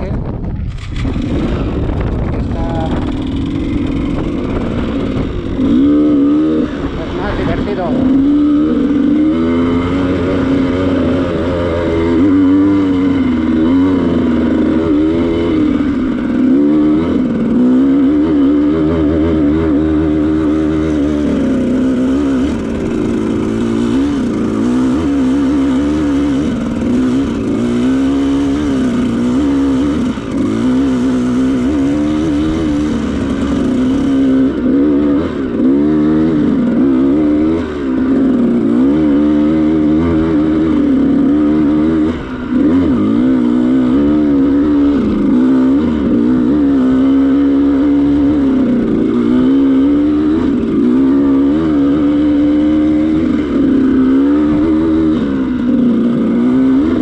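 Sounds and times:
dirt bike engine under load: 0:00.0 - 0:18.2.

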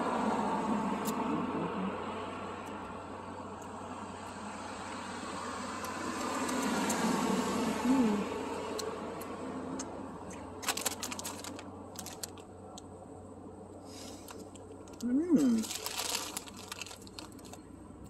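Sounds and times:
vehicle passing: 0:00.0 - 0:12.4
foil snack bag crinkling: 0:10.6 - 0:12.5, 0:14.0 - 0:17.7.

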